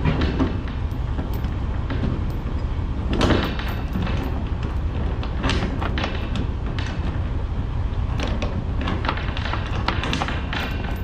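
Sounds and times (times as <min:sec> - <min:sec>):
chain clinking: 0:00.1 - 0:05.1, 0:10.5 - 0:11.0.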